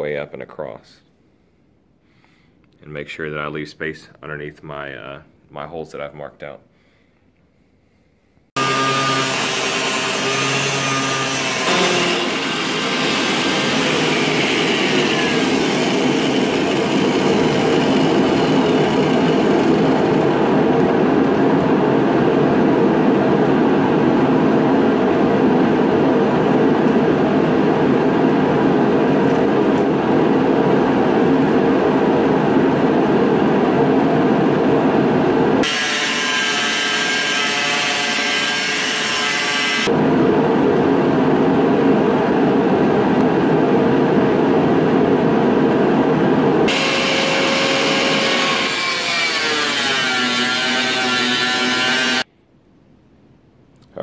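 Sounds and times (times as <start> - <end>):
angle grinder cutting sheet metal: 8.6 - 20.4, 35.6 - 39.9, 46.7 - 52.3.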